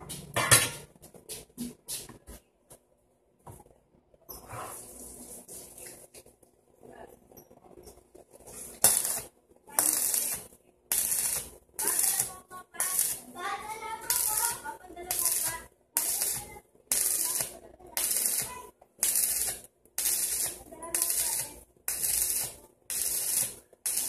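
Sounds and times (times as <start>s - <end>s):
arc welding crackle: 7.9s - 24.0s.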